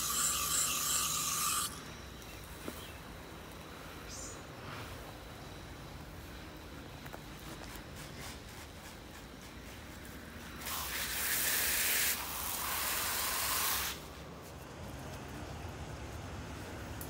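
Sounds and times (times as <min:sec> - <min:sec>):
hose nozzle spraying water: 0:00.0 - 0:01.8, 0:10.6 - 0:14.0.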